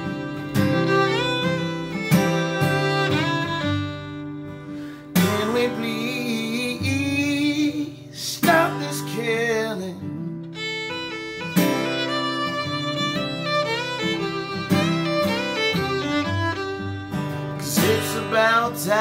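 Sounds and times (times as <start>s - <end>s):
violin melody: 0.0s - 7.6s, 10.4s - 19.0s
acoustic guitar strumming: 0.0s - 19.0s
man singing: 5.2s - 10.2s, 17.6s - 19.0s.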